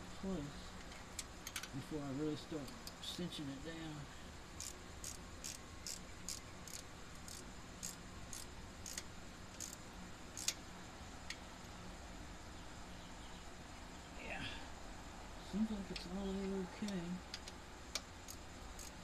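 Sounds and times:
socket ratchet clicking: 0:04.6 - 0:09.8, 0:10.4 - 0:10.6, 0:17.3 - 0:19.0.

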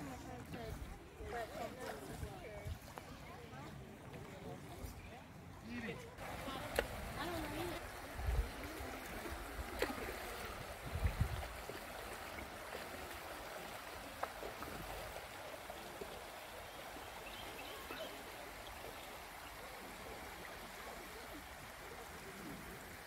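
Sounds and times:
river water rushing over rocks: 0:06.2 - 0:22.0.

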